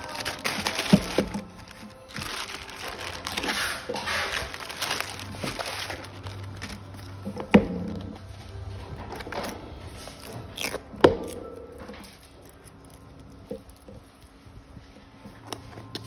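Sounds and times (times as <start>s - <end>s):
plastic mailer crinkling and tearing: 0.0s - 11.4s.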